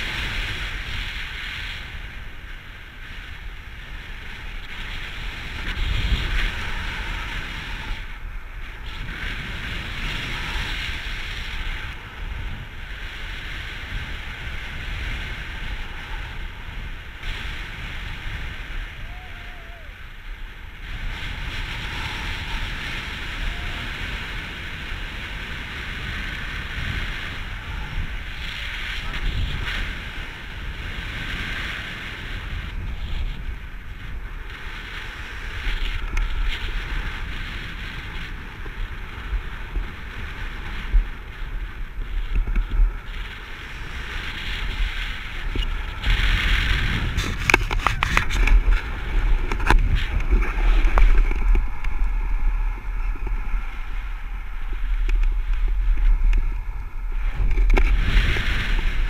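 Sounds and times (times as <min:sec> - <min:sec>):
wind buffeting microphone: 0:00.0 - 0:59.0
sharp clicks and rustles: 0:47.1 - 0:53.4.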